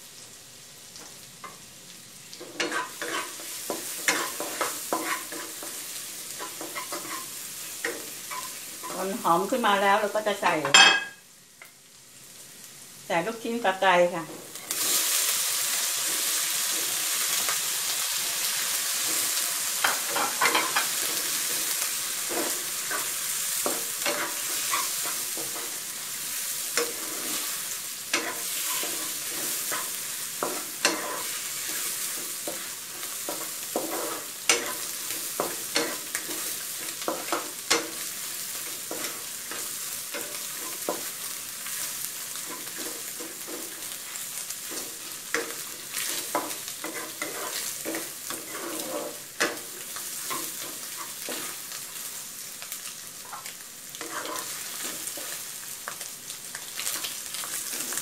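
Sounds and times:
food sizzling in a wok: 0.0s - 58.0s
wooden spatula scraping a pan: 2.4s - 9.0s, 19.0s - 51.7s, 53.3s - 55.4s, 56.8s - 58.0s.

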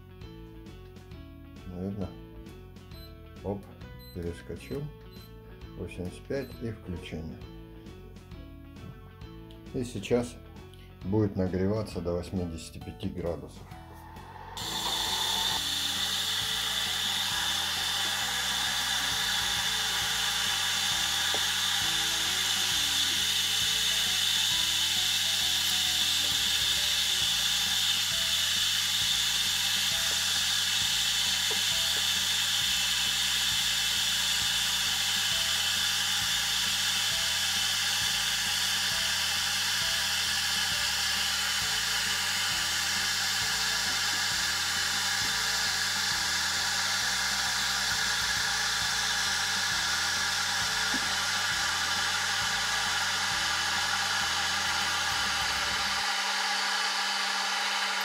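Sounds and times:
electric kettle hissing whine: 3.1s - 7.3s, 13.6s - 58.0s.

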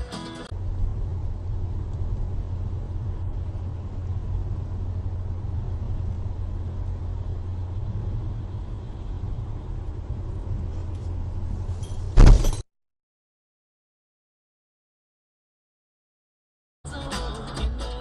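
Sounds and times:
car engine and road noise: 0.0s - 12.6s.

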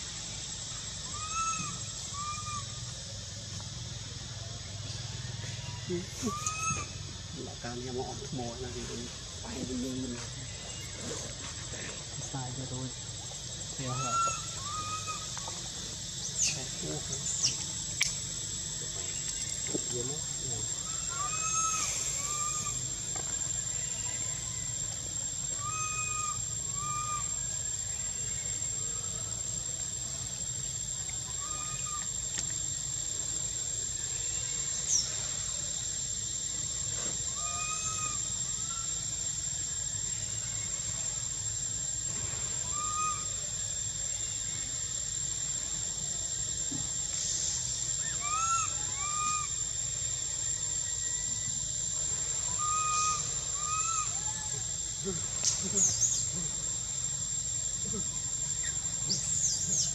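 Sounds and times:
steady high-pitched whine: 0.0s - 59.9s
whistled animal calls: 1.0s - 2.8s, 5.5s - 7.0s, 20.8s - 22.8s, 25.6s - 27.5s, 37.3s - 39.0s, 42.6s - 43.4s, 48.0s - 49.6s, 52.5s - 54.6s.

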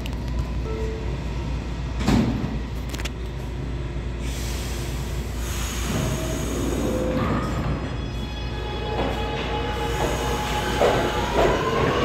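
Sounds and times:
train doors closing with knock: 2.0s - 2.6s, 8.8s - 12.0s
train hiss: 4.2s - 7.2s, 9.7s - 12.0s.

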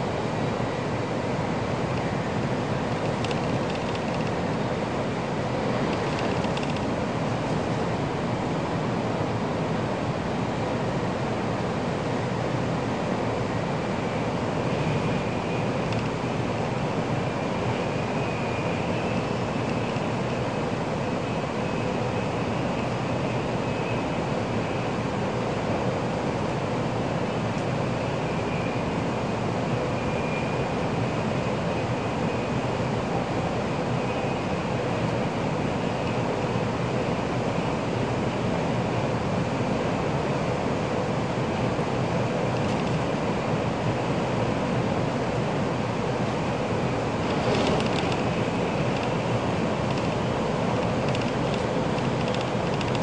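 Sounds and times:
train rumbling at speed: 0.0s - 53.0s
train cabin rushing noise: 47.0s - 53.0s.

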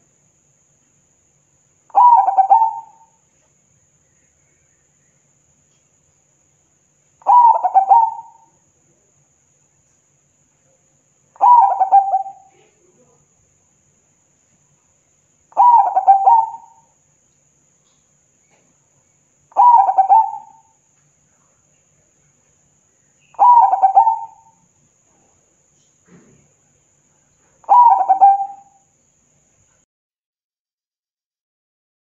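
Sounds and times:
dove cooing: 1.9s - 3.1s, 7.2s - 8.5s, 11.4s - 12.8s, 15.6s - 16.8s, 19.6s - 20.7s, 23.4s - 24.6s, 27.6s - 28.8s.

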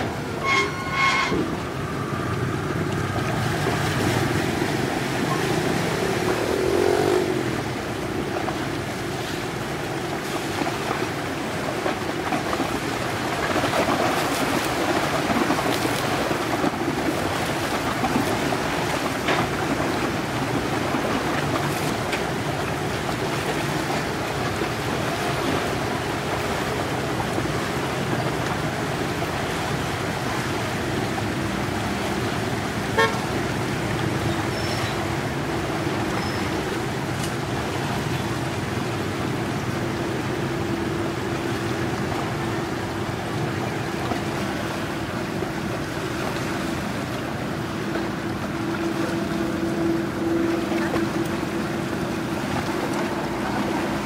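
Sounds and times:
ferry engine droning: 0.0s - 10.2s, 15.5s - 54.0s
bow wave splashing along hull: 0.0s - 54.0s.

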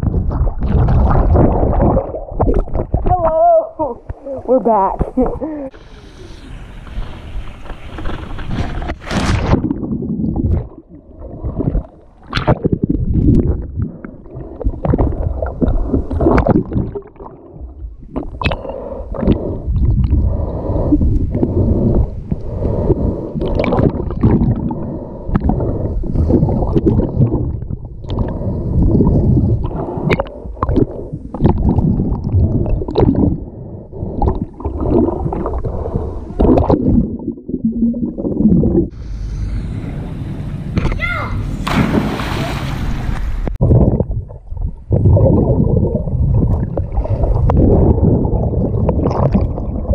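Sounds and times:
muffled underwater gurgling: 9.6s - 39.1s, 43.6s - 49.9s
sharp splashes: 39.4s - 43.4s.

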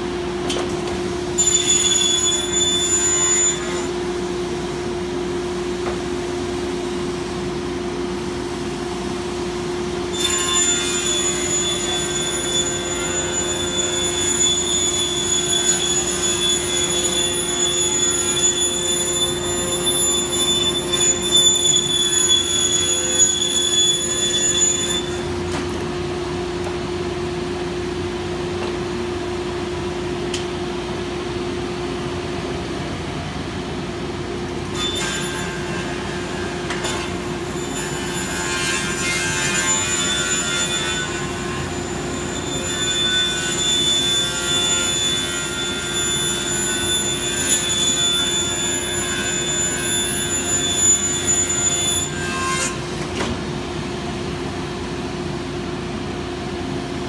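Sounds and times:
panel saw high-pitched whine: 1.2s - 5.7s, 9.7s - 27.8s, 34.6s - 53.0s.

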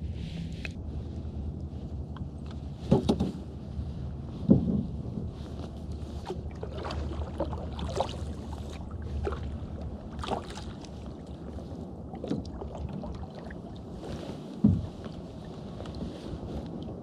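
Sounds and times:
paddle splashing in water: 6.1s - 16.4s.

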